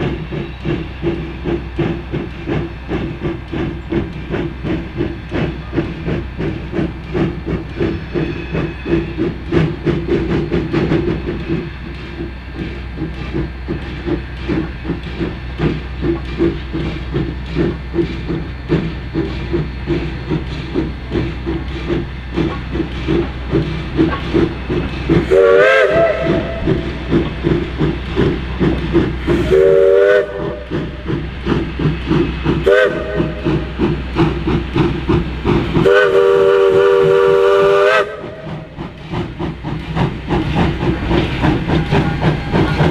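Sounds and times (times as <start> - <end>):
steam locomotive exhaust chuffs: 0.0 - 42.9
steam whistle: 25.3 - 26.8, 29.4 - 30.7, 32.6 - 33.6, 35.8 - 38.5.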